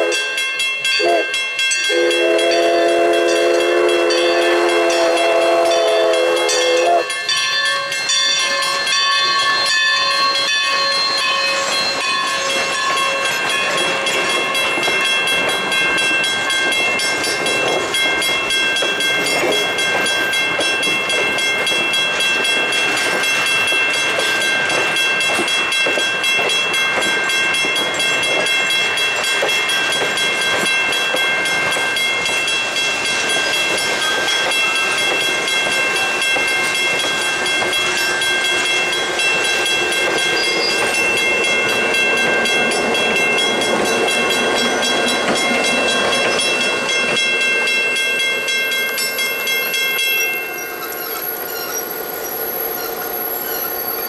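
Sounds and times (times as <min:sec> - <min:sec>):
diesel locomotive engine drone: 0:00.0 - 0:54.0
train wheels clicking on track: 0:00.0 - 0:54.0
high-pitched ring: 0:32.0 - 0:54.0.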